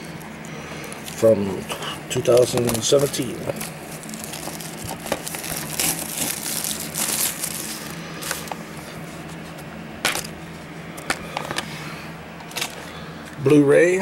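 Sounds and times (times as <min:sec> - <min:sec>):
cellophane crinkling: 0:00.8 - 0:09.4.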